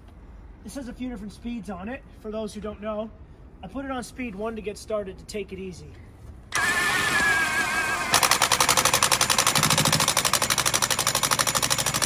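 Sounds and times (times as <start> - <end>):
impact wrench motor whirring: 6.5 - 12.0
impact wrench hammering rattle: 6.6 - 12.0.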